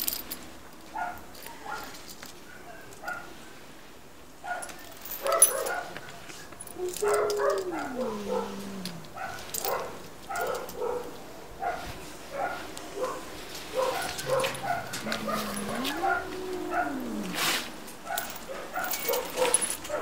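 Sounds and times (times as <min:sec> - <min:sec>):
dog whimpering and yipping: 0:06.7 - 0:09.8, 0:13.8 - 0:17.5.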